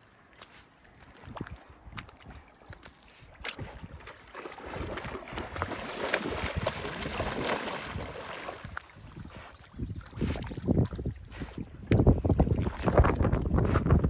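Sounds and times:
dog splashing through water: 3.4s - 9.0s.

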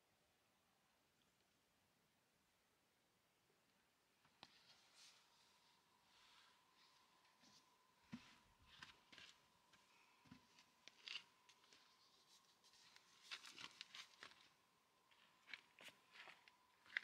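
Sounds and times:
soft rustles and light clicks: 4.2s - 17.0s
crackly rustling of tin: 10.9s - 17.0s.

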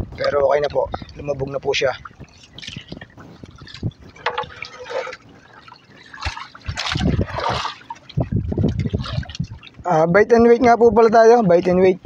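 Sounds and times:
water splashing against a boat hull: 0.0s - 12.0s.

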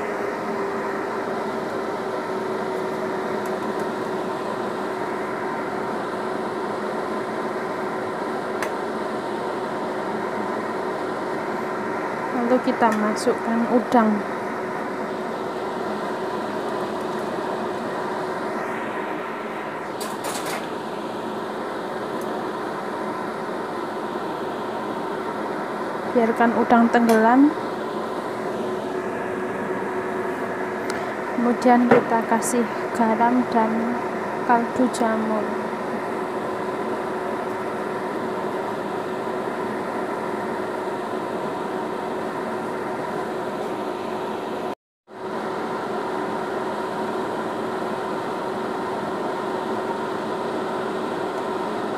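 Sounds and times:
mechanical hum: 0.0s - 51.9s.

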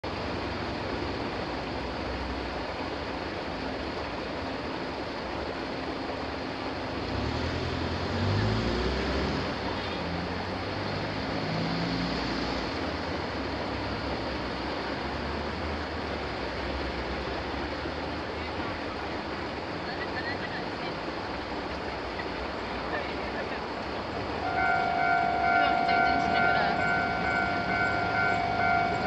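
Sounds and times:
road traffic: 0.0s - 29.0s
van engine pulling away: 6.8s - 18.9s, 24.0s - 29.0s.

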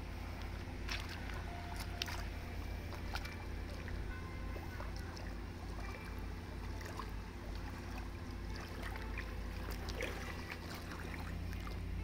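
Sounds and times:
low rumble: 0.0s - 12.0s
faint splashes and ticks: 0.4s - 12.0s
river water rushing: 4.8s - 12.0s.

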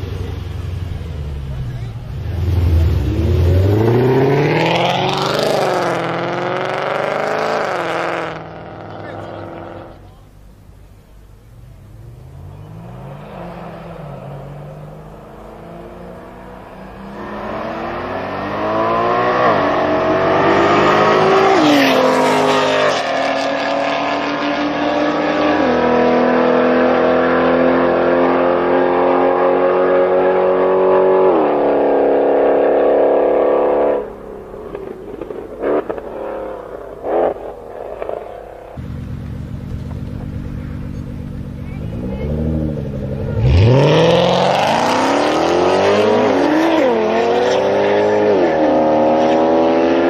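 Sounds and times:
engine revving: 0.0s - 10.0s, 11.8s - 50.0s
cars accelerating hard: 0.0s - 10.1s, 11.4s - 50.0s
engine idling: 38.8s - 42.2s.

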